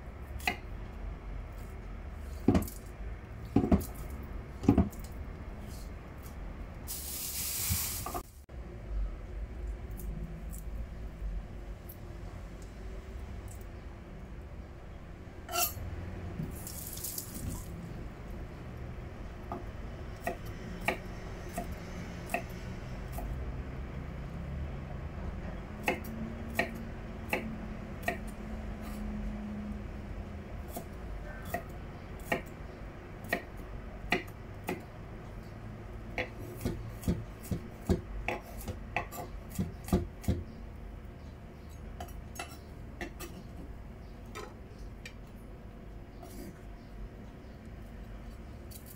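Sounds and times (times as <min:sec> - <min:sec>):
background hum: 0:08.5 - 0:48.9
knife chopping on wooden board: 0:36.2 - 0:40.5.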